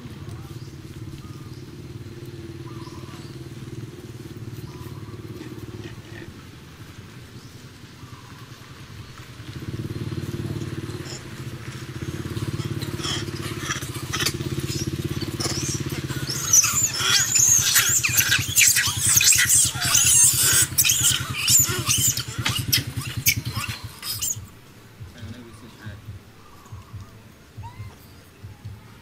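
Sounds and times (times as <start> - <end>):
engine droning and chugging: 0.0 - 29.0
monkeys screaming: 10.1 - 24.5.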